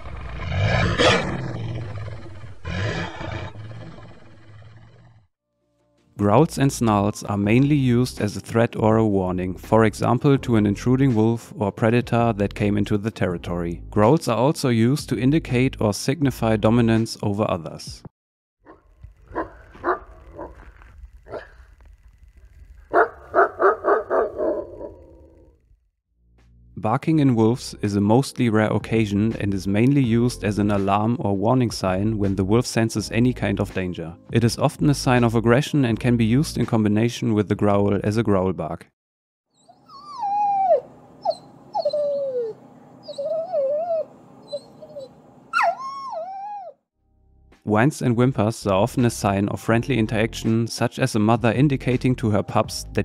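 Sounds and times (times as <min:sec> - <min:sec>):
wolf barking: 0:00.0 - 0:04.0, 0:18.7 - 0:20.6, 0:21.3 - 0:21.6, 0:22.9 - 0:25.5
wolf whimpering: 0:39.6 - 0:46.8.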